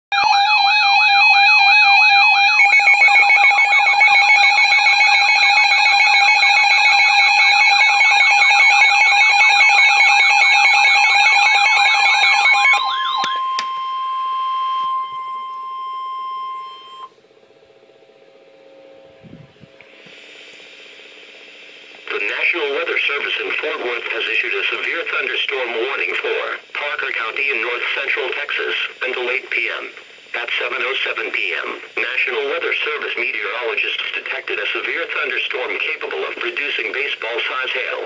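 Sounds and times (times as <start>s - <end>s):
warbling electronic siren: 0.1s - 17.1s
steady warning tone: 0.1s - 38.0s.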